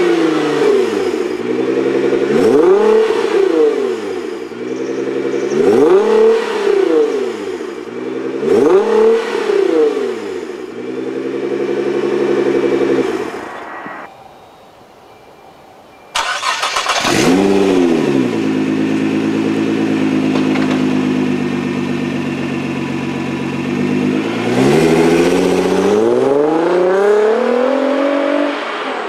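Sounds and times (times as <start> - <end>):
car driving off: 0.0 - 14.1, 16.2 - 29.0
car engine revving and idling: 0.0 - 14.1, 16.2 - 29.0.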